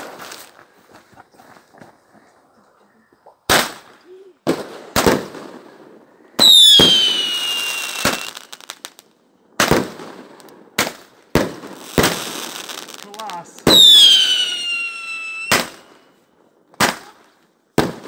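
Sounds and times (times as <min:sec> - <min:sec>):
fireworks bangs: 0:03.5 - 0:09.0, 0:09.6 - 0:16.1, 0:17.8 - 0:18.0
falling firework whistle: 0:06.4 - 0:08.6, 0:13.7 - 0:16.1.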